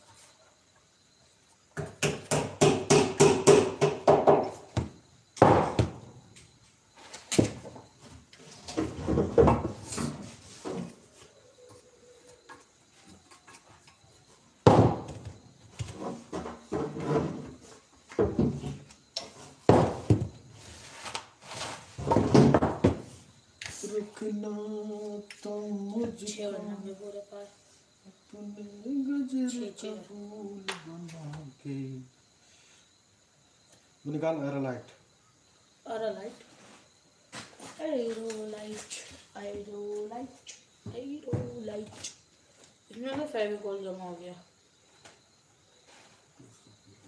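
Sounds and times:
hand tool knocking on wood: 0:01.8 - 0:06.0.

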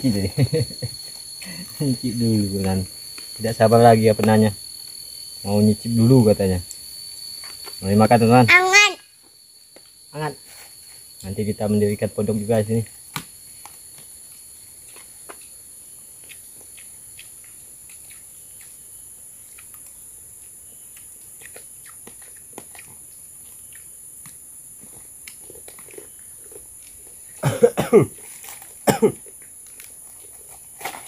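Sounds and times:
crickets droning: 0:00.0 - 0:31.0
person's voice burst: 0:08.4 - 0:09.0.

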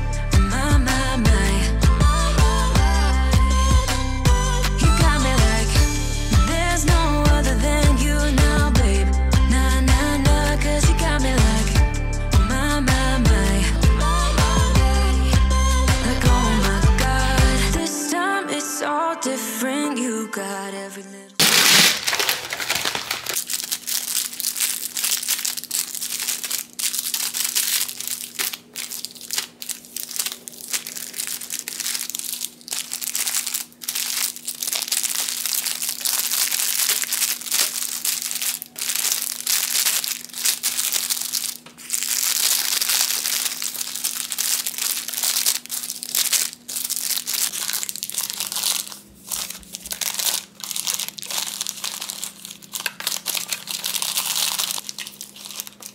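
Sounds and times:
faint steady hum: 0:17.1 - 0:55.9
material crinkling and crumpling: 0:21.4 - 0:55.9.

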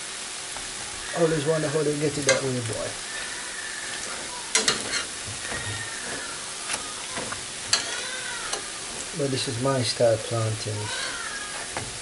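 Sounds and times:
plantain sizzling in oil: 0:00.0 - 0:12.0
metal utensils clinking on pan: 0:02.1 - 0:02.8, 0:04.5 - 0:09.1.

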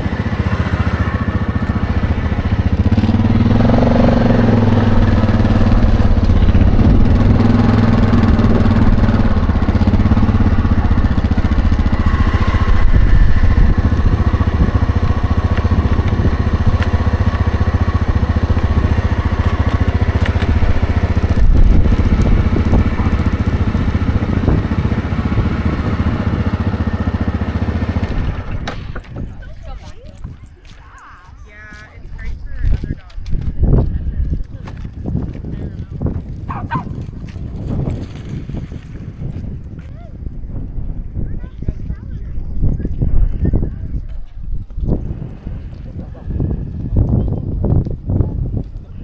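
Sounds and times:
atv engine running: 0:00.0 - 0:49.0.

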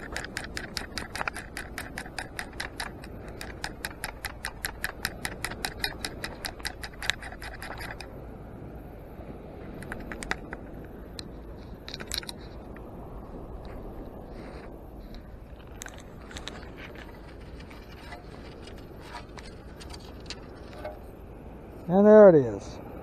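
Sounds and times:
sand scoop rattling: 0:00.0 - 0:08.1, 0:15.7 - 0:21.2
scattered clicks: 0:00.0 - 0:08.1, 0:09.8 - 0:12.9.

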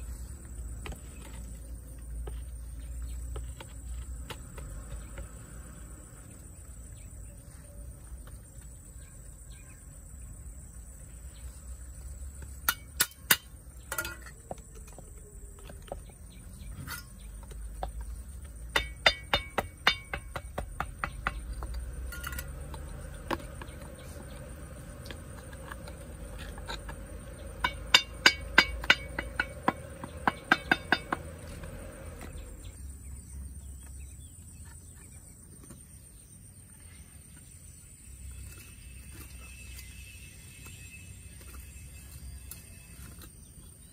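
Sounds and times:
sharp knocks: 0:18.7 - 0:22.3, 0:27.5 - 0:31.4.

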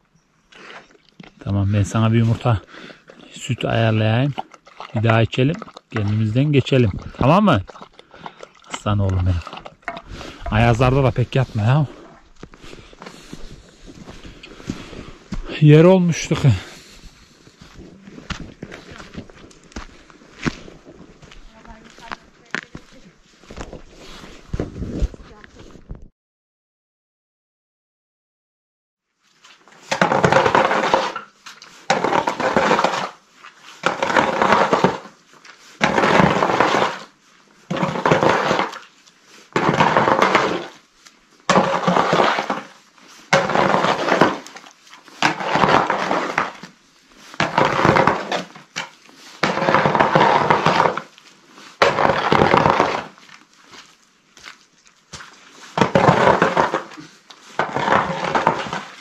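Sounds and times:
shovel scraping mud on stone: 0:00.6 - 0:25.2, 0:29.4 - 0:59.0.

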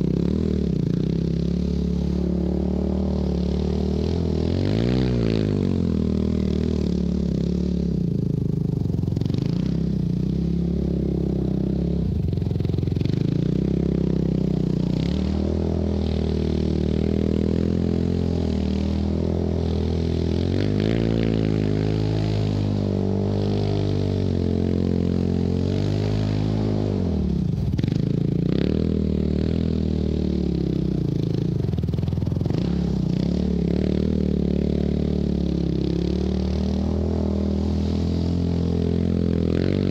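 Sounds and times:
quad engine revving: 0:00.0 - 0:39.9
tyres spraying snow: 0:36.5 - 0:39.9.

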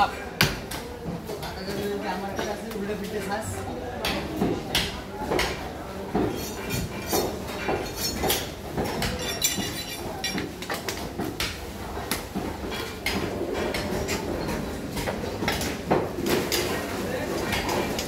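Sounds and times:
cleavers chopping meat on wood: 0:00.4 - 0:00.9, 0:04.0 - 0:09.2.

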